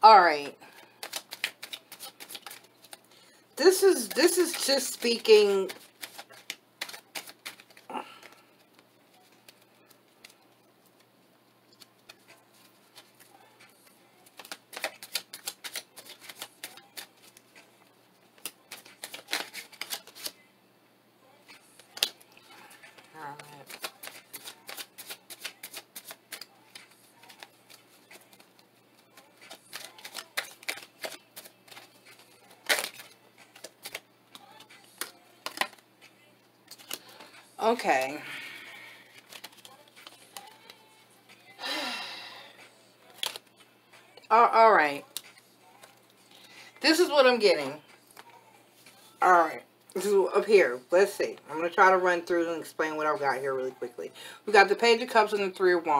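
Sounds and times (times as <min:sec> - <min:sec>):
cards being shuffled: 0:00.4 - 0:03.1, 0:03.7 - 0:11.1, 0:11.7 - 0:20.4, 0:21.5 - 0:41.4, 0:42.6 - 0:44.2, 0:45.0 - 0:49.2
card slap: 0:05.7 - 0:07.8, 0:21.8 - 0:22.2, 0:23.6 - 0:27.5, 0:29.2 - 0:34.0, 0:35.0 - 0:35.8.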